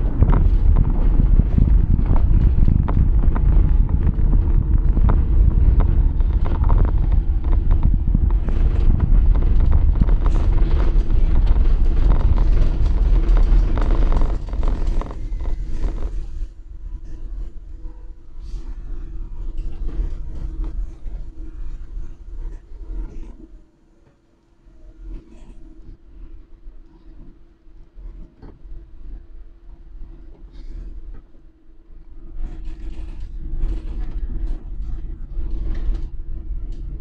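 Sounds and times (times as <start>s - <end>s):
tyres rumbling over cobblestones: 0.0s - 18.4s.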